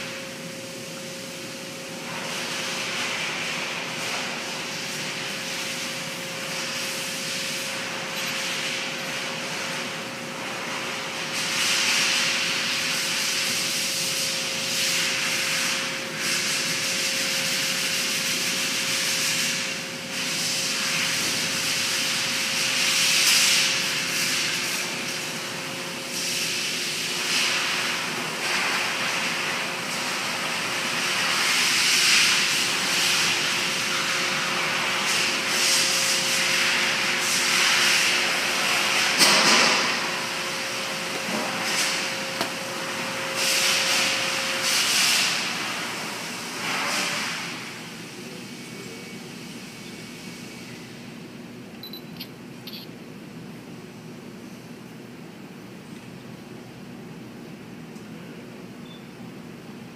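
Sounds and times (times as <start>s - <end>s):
faint steady hum: 51.1s - 54.7s.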